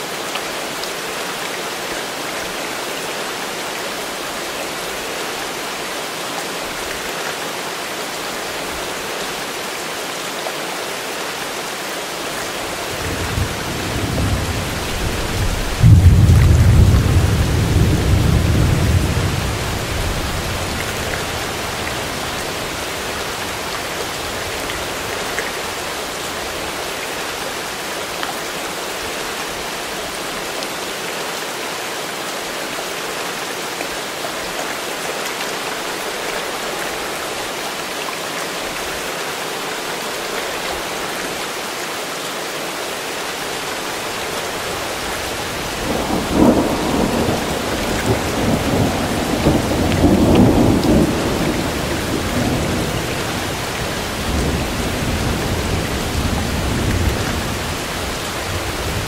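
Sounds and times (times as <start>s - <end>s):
steady rain falling: 0.0s - 59.0s
low thunder rumble: 45.9s - 53.0s.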